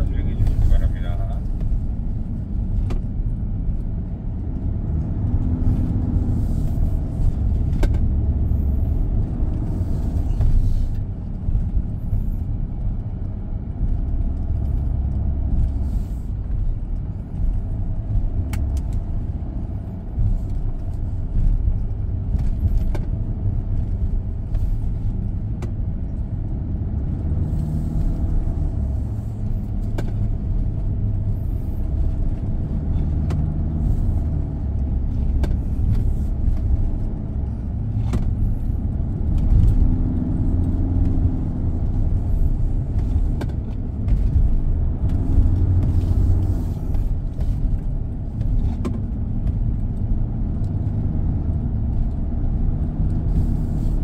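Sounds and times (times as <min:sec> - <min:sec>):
pickup engine rumble: 0:00.0 - 0:54.0.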